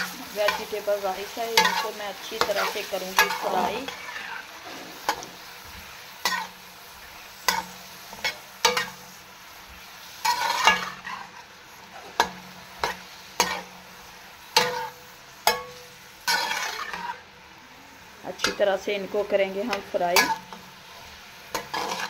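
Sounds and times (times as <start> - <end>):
metal spatula scraping pan: 0.0 - 5.5, 6.2 - 6.6, 10.2 - 13.8, 14.6 - 17.3, 19.7 - 22.0
faint sizzle: 0.0 - 22.0.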